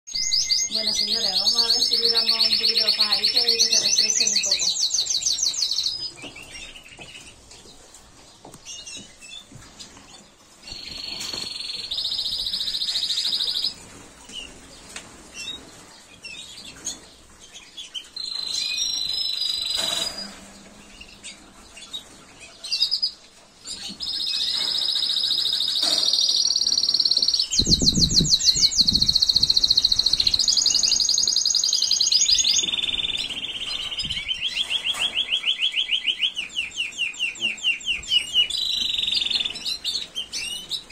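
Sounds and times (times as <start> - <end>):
canaries singing trills: 0.1 - 40.9.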